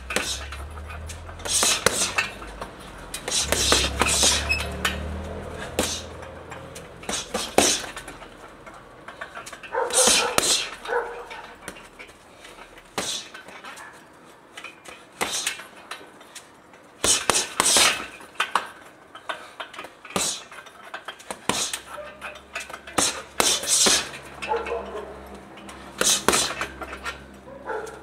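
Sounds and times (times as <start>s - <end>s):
punches smacking heavy bag: 0.0s - 0.6s, 1.4s - 2.4s, 3.1s - 4.6s, 5.5s - 6.1s, 7.0s - 8.0s, 9.9s - 10.8s, 12.9s - 13.4s, 15.2s - 15.6s, 17.0s - 18.2s, 20.1s - 20.5s, 21.3s - 21.8s, 22.6s - 24.2s, 26.0s - 26.7s.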